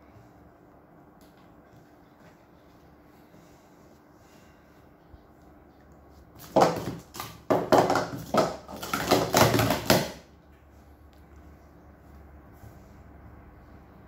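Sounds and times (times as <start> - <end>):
plastic cups clattering: 6.4 - 10.3.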